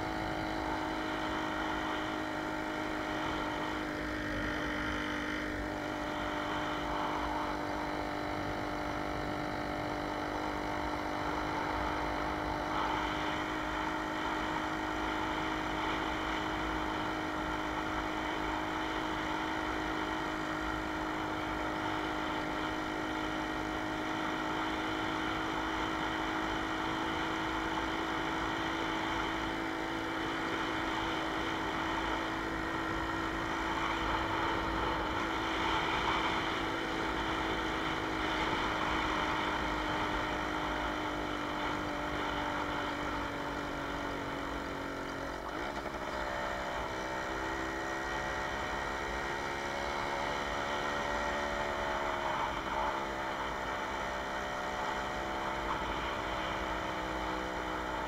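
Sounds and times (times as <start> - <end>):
two-stroke moped engine running: 0.0 - 58.0.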